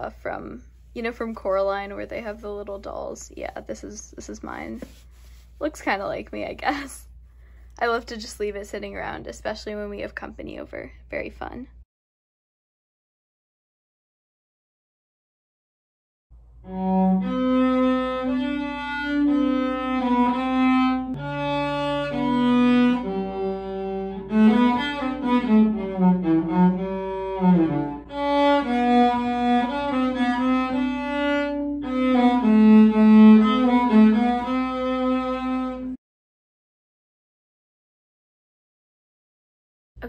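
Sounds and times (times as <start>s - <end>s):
cello bowed slow melody: 16.6s - 36.0s.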